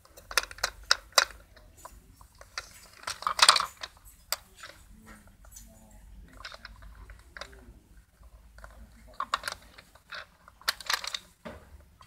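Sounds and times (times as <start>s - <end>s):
plastic toy car clicking: 0.0s - 4.8s, 6.3s - 7.6s, 8.6s - 12.0s.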